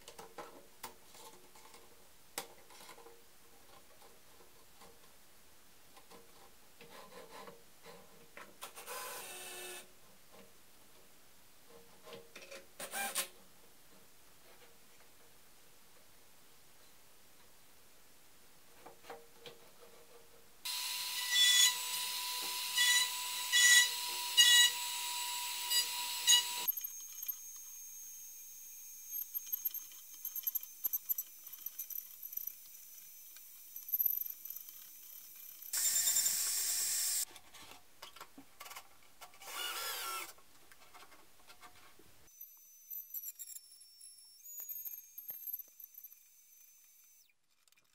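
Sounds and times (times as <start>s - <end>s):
wood router cutting wood: 20.7s - 29.2s, 35.8s - 37.2s.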